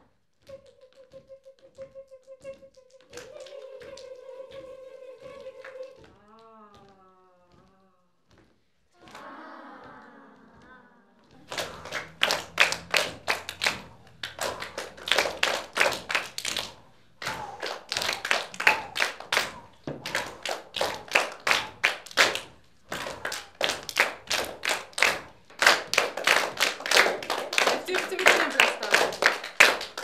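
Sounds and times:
group clapping in rhythm: 0.0s - 7.7s, 8.6s - 30.0s.

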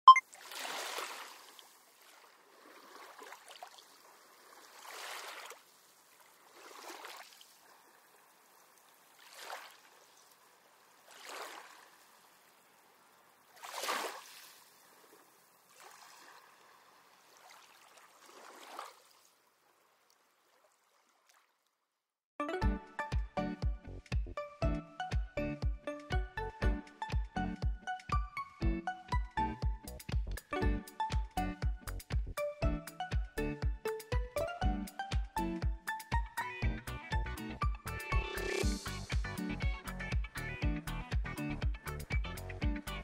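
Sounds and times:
water sloshing in a pool: 0.2s - 21.9s
music: 22.4s - 43.0s.

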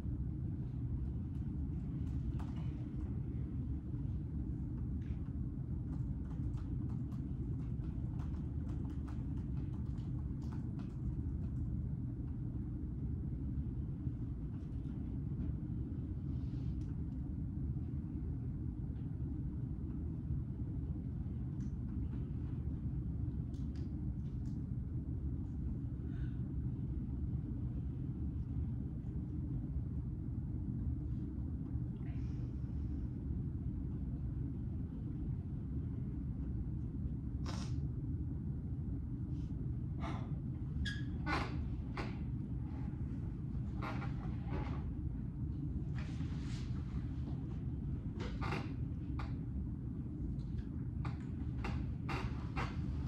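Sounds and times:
low room rumble: 0.0s - 53.0s
faint clicks and taps: 5.0s - 12.4s.

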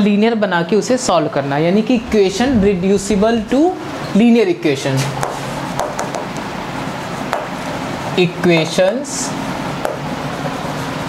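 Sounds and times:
steady background hiss: 0.0s - 11.0s
chalk tapping and scratching: 5.0s - 6.2s.

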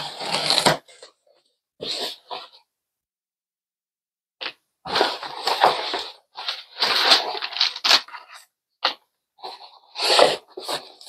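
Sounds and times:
packing paper rustling and crinkling: 4.9s - 8.4s.

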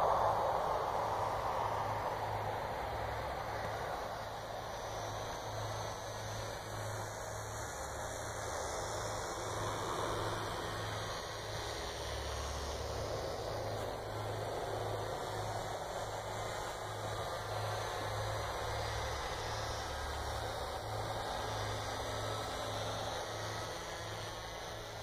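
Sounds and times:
distant model plane motor drone: 0.0s - 25.0s.

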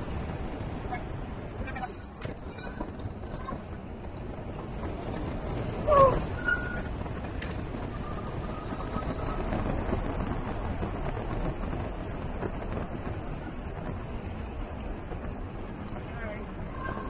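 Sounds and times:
bike road noise: 0.0s - 17.0s
wind rush on microphone: 0.0s - 17.0s.

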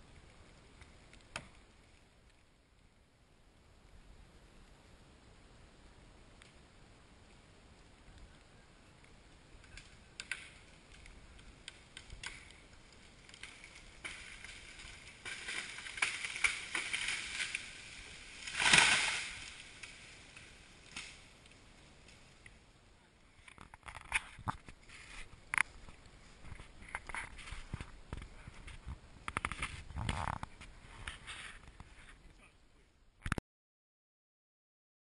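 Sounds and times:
tree trunk snapping and cracking: 9.6s - 22.6s, 23.4s - 30.5s
tree crashing to the ground: 9.7s - 21.4s
branches swishing through canopy: 13.2s - 21.1s.

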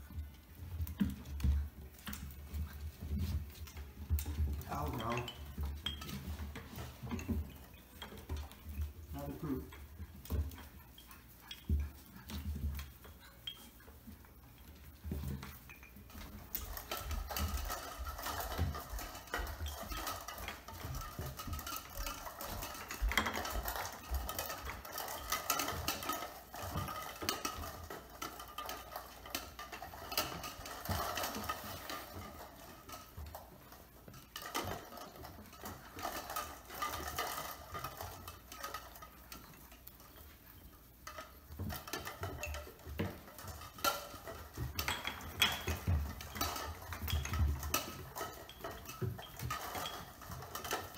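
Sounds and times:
puppies clicking and clattering: 0.0s - 50.9s.

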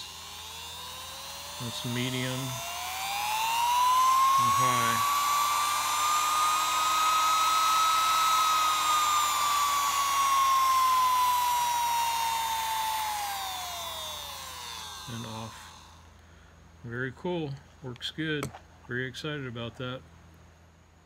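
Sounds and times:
sewing machine motor whining: 0.0s - 16.0s.

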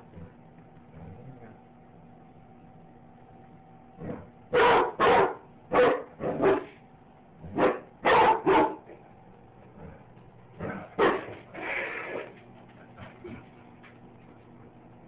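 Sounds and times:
dog barking: 4.0s - 6.8s, 7.4s - 9.0s, 10.6s - 11.4s.

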